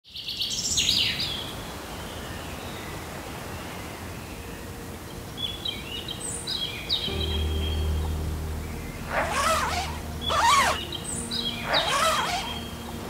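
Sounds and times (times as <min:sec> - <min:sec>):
songbirds chirping: 0:00.1 - 0:13.0
river rushing: 0:09.1 - 0:13.0.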